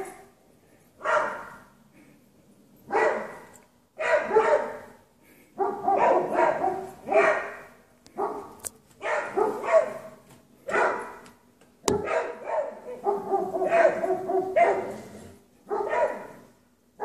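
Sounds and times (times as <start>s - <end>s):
dogs barking: 1.0s - 1.8s, 2.8s - 11.3s, 11.9s - 17.0s.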